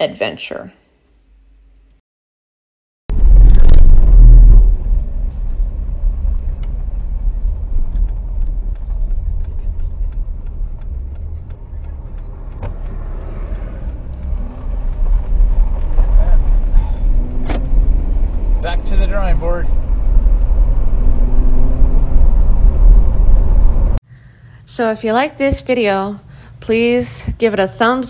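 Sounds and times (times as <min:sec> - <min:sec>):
vehicle on gravel road: 0:03.1 - 0:24.0
ticks: 0:07.9 - 0:16.0.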